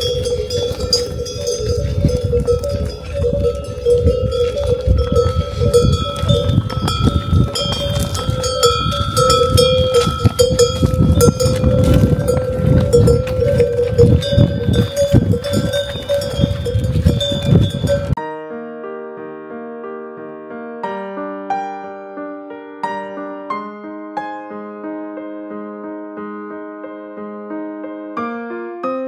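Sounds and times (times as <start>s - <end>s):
pack animal bells jangling: 0.0s - 18.2s
piano music: 0.0s - 29.0s.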